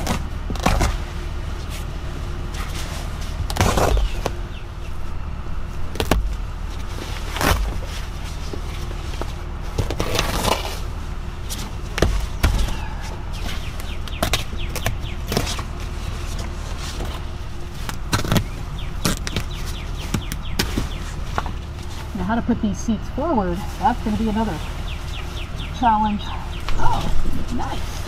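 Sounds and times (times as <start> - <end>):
steady low hum: 0.0 - 28.0
knife cutting and tearing upholstery: 17.8 - 21.0.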